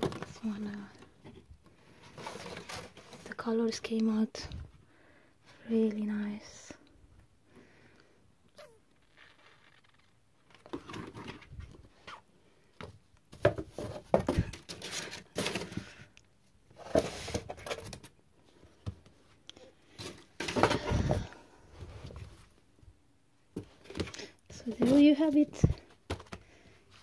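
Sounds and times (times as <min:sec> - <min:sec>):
paper and card rustling: 0:23.8 - 0:26.6.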